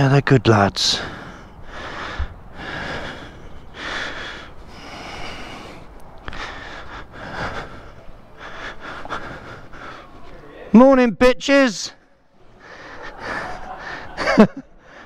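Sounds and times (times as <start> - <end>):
person breathing: 0.9 - 10.3, 12.4 - 14.2.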